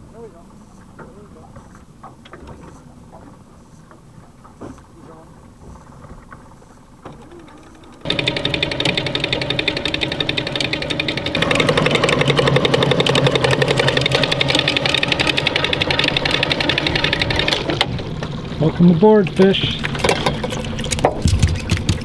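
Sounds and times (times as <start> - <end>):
fast mechanical rattle: 7.2 - 22.0.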